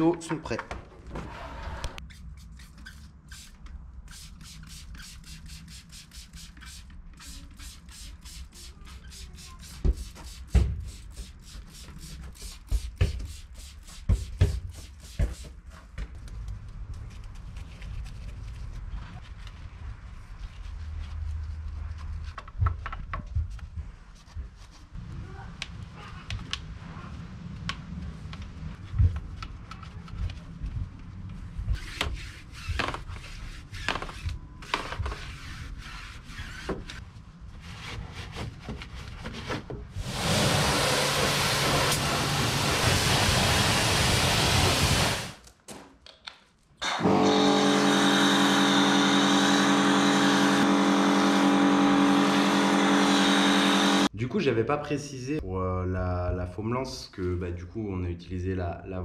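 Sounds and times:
loud spraying hiss: 40.0 - 45.4
pressure washer motor whine: 46.8 - 54.1.

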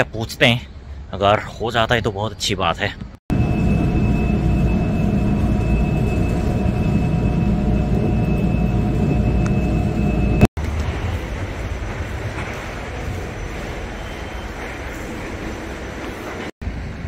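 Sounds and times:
faint high whine: 3.3 - 12.0.

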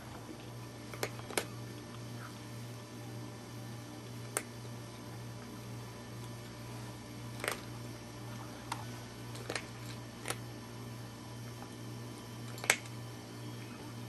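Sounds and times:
steady low hum: 0.0 - 14.0
cat crunching dry kibble: 7.4 - 7.7, 9.3 - 10.5.

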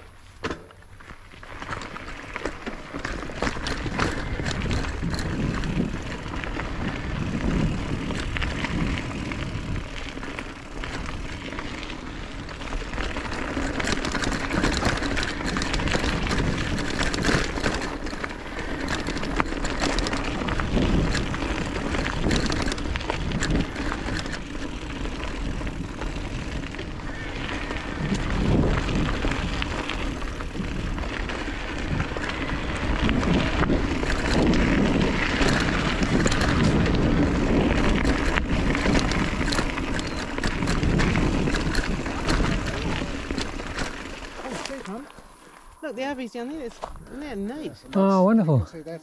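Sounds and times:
bike tyres crunching on gravel: 0.0 - 49.0
wind rumble on microphone: 3.0 - 44.4.

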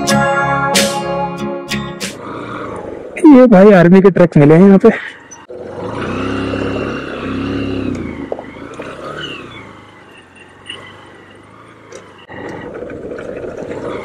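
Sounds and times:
motorcycle engine at low speed: 5.2 - 14.0.

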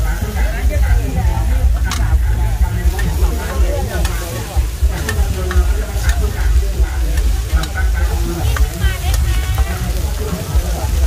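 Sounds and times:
batter sizzling in a pan: 0.0 - 11.0
low rumble: 0.0 - 11.0
metal spatulas scraping a pan: 2.8 - 7.8.

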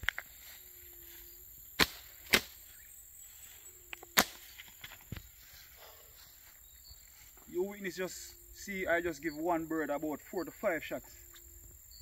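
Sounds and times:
short sharp cracks: 1.8 - 2.6, 4.0 - 5.0.

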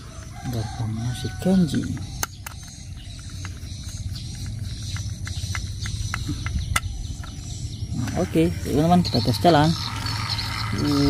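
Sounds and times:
low rumble: 3.6 - 11.0.

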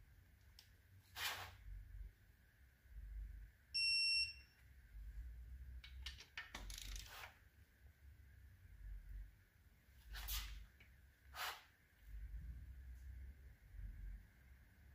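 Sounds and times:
torque wrench beep: 3.8 - 4.6.

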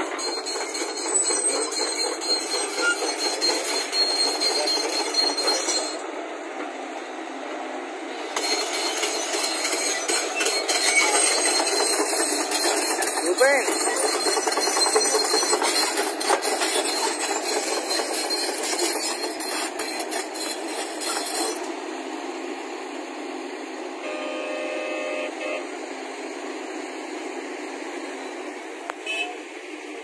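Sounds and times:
steel tracks clattering: 0.0 - 7.1, 8.2 - 22.2
excavator diesel engine: 0.0 - 30.0.

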